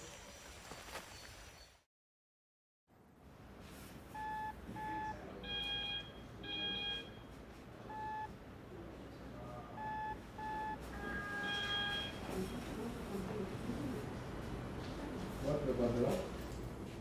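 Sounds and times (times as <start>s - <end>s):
ecg machine beeps: 4.2s - 7.3s, 7.9s - 8.3s, 9.7s - 12.6s.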